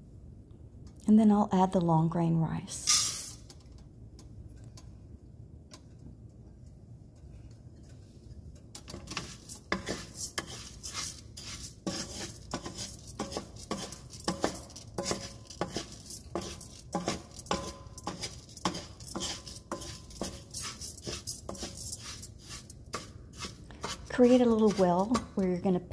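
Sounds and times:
wooden spoon scraping pan: 8.8s - 25.9s.

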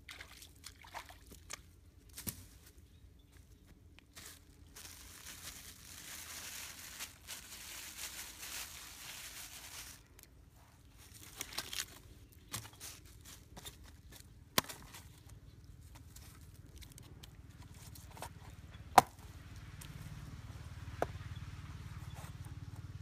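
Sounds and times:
plastic bags rustling: 4.1s - 10.3s, 10.9s - 14.3s.

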